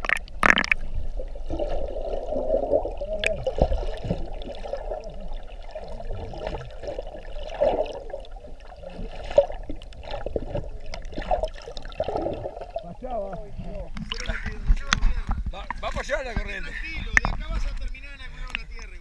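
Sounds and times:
water splash: 0.0 - 12.9
muffled underwater sloshing: 0.0 - 19.0.

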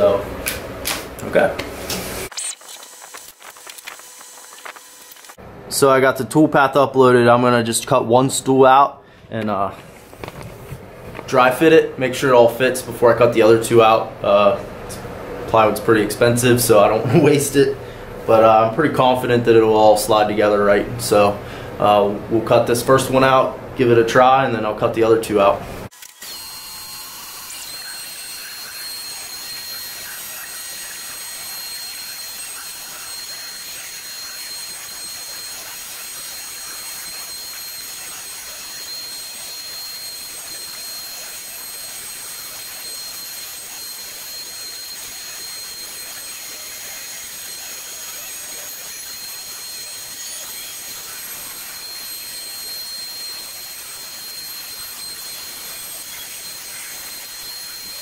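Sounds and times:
wood router cutting plywood: 1.9 - 5.4, 26.0 - 58.0.

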